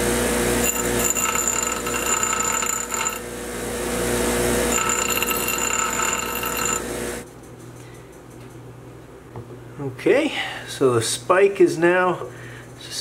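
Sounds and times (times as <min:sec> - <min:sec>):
grinder motor hum: 0:00.0 - 0:07.2
high grinding whine: 0:00.0 - 0:07.2.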